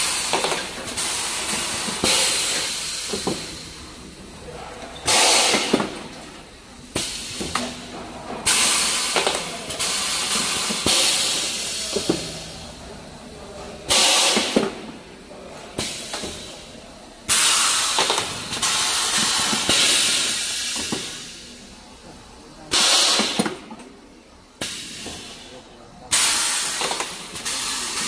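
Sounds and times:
pneumatic air hissing bursts: 0.0 - 3.8, 5.0 - 6.1, 8.5 - 12.6, 13.9 - 14.8, 17.3 - 21.6, 22.7 - 23.6, 24.6 - 28.0.

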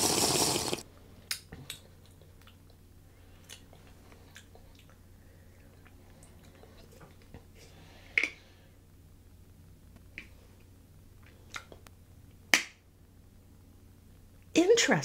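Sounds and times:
sipping from a cup: 0.0 - 0.8
lip smacks and tongue clicks: 3.4 - 5.0.

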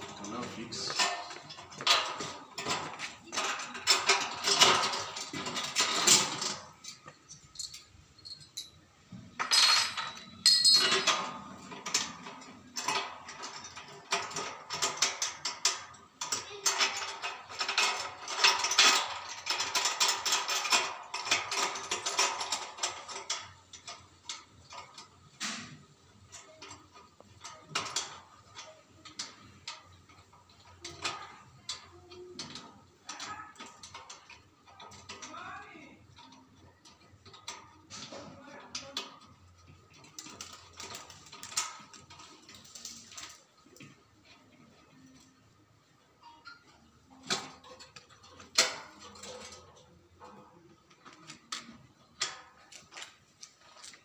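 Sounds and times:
spanner clicking on metal bolts: 9.4 - 35.3, 36.1 - 45.3, 46.2 - 54.0.

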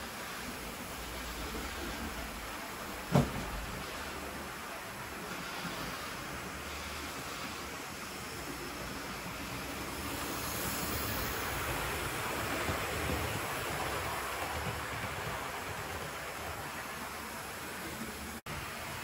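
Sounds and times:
model train rumbling on track: 0.0 - 19.0.

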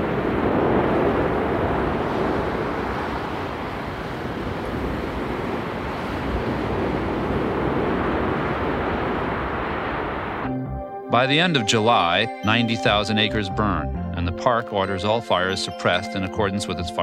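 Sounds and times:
forest fire rushing: 0.0 - 10.5.

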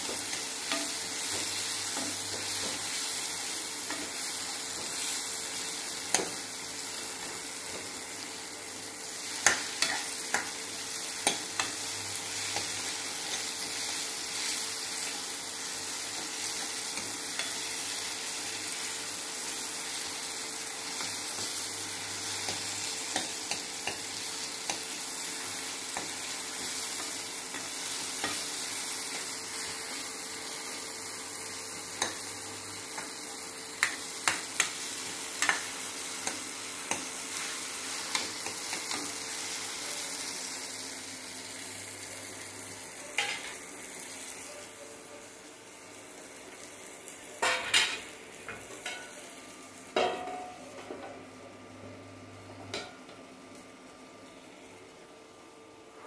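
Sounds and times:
gravy sizzling in a pan: 0.0 - 50.8
cookware clanking: 47.4 - 49.2, 50.0 - 51.2.

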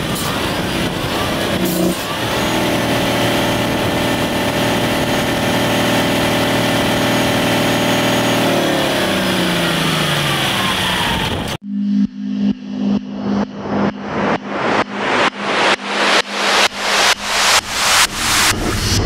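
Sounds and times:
diesel engine revving: 0.0 - 11.6.

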